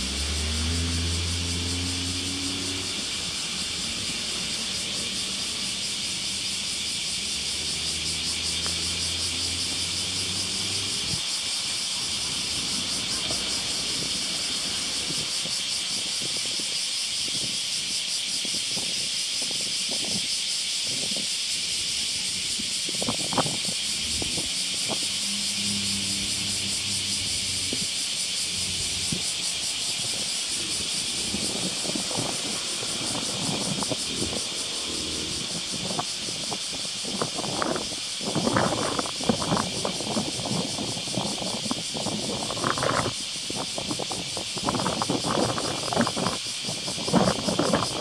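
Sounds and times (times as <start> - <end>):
vehicle engine humming: 0.0 - 16.2, 22.1 - 41.3.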